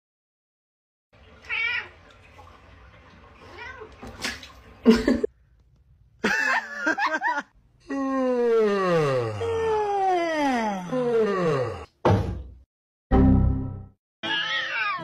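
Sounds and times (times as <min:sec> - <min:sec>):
cats meowing: 0:01.4 - 0:02.0, 0:03.5 - 0:04.0, 0:14.2 - 0:15.0
cat yowling: 0:14.2 - 0:15.0.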